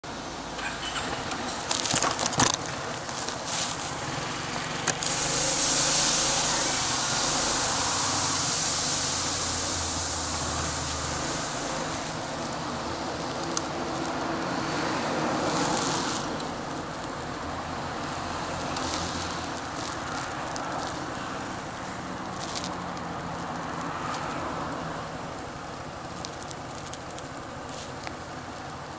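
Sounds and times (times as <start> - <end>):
road traffic passing: 0.0 - 28.9.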